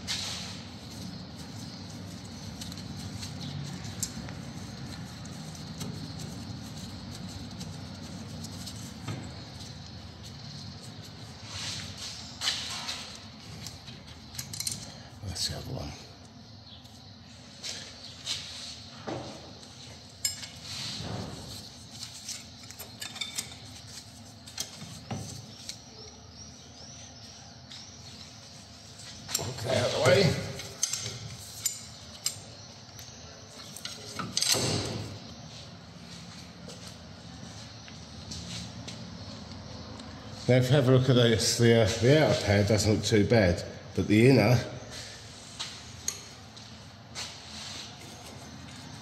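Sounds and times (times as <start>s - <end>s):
steady low hum: 0.0s - 49.0s
metal clinks and knocks of tools: 13.6s - 15.0s, 20.1s - 20.7s, 22.3s - 23.8s, 30.5s - 32.5s, 33.7s - 34.9s.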